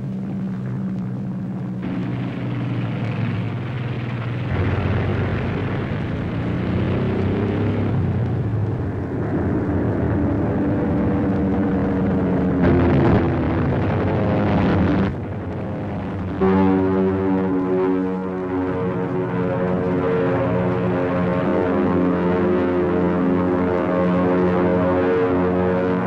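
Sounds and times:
propeller aircraft engines droning: 0.0s - 26.0s.

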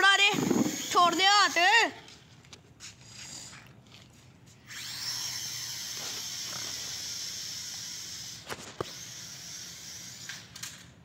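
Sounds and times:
toy drone motors whining: 0.1s - 1.9s, 4.6s - 10.8s.

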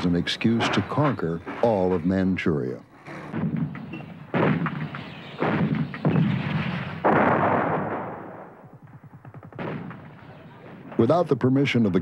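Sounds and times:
artillery booms: 3.3s - 11.1s.

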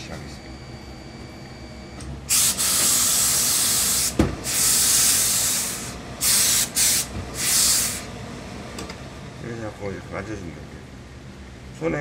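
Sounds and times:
steam iron hissing bursts: 2.3s - 8.1s
thump: 4.2s - 4.4s.

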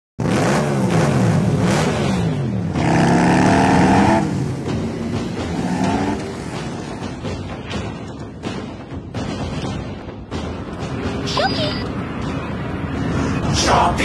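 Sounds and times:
motorcycle engines revving: 0.2s - 7.5s.

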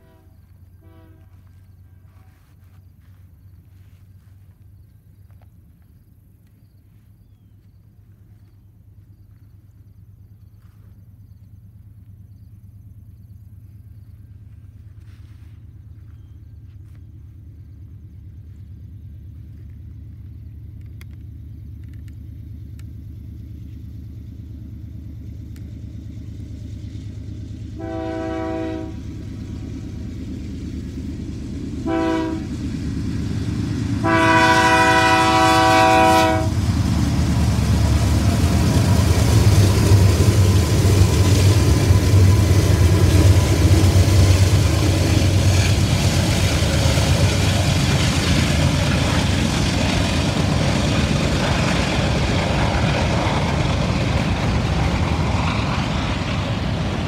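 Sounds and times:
locomotive air horn blasts: 0.0s - 2.4s, 27.8s - 29.1s, 31.8s - 32.6s, 34.0s - 36.6s
diesel locomotives rumbling: 0.0s - 57.0s.

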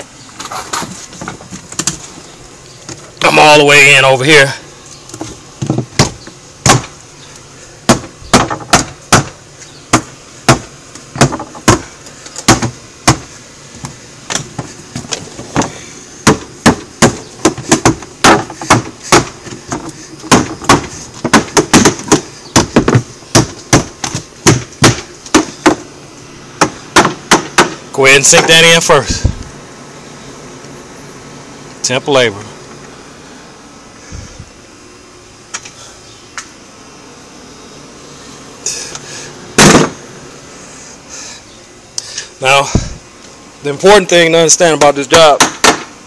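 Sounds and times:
hammer driving nails into wood: 7.9s - 9.3s, 9.9s - 11.8s, 12.4s - 13.2s, 15.6s - 25.8s, 26.6s - 27.8s, 45.4s - 45.9s.

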